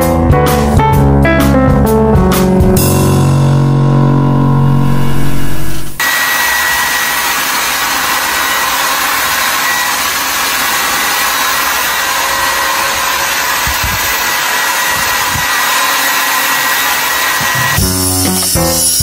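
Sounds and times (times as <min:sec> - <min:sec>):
hair dryer running: 0:06.0 - 0:18.1.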